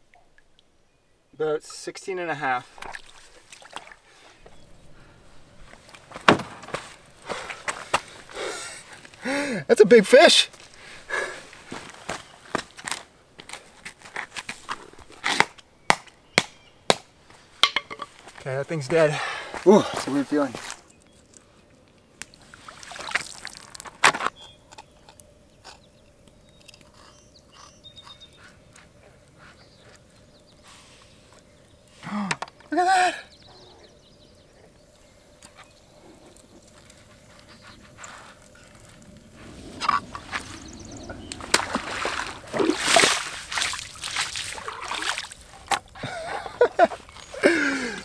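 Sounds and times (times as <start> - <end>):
water splashing: 2.7 - 4.0, 22.4 - 23.9, 38.5 - 45.7
loud splash: 41.4 - 45.3.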